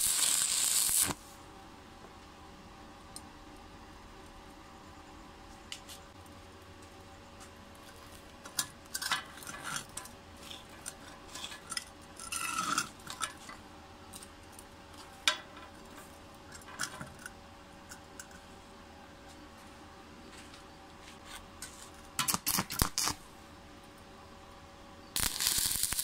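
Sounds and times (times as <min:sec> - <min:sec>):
faint steady hum: 0:00.0 - 0:26.0
metal clinks and scrapes on stone: 0:08.5 - 0:13.6.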